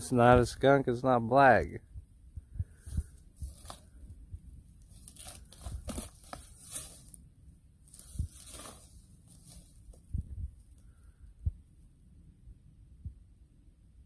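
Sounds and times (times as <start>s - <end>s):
leaves and twigs crackling underfoot: 2.8s - 4.1s, 4.7s - 11.0s.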